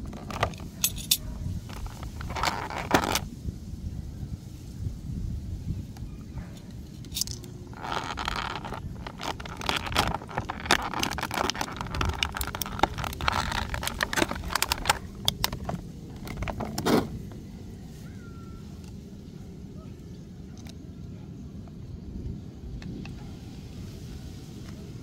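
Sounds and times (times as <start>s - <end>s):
plastic packaging crinkling: 1.6s - 3.3s, 7.2s - 16.8s.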